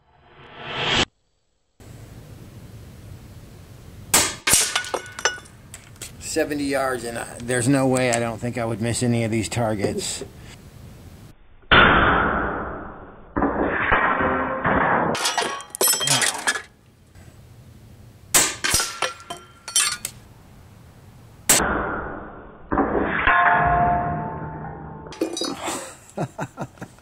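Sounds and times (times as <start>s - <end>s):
pellets clanking on steel targets: 4.1s - 5.6s, 15.2s - 16.8s, 18.3s - 20.2s.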